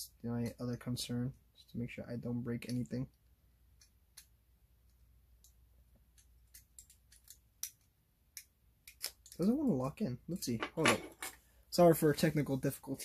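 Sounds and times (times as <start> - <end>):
small plastic parts clicking: 3.8 - 9.5.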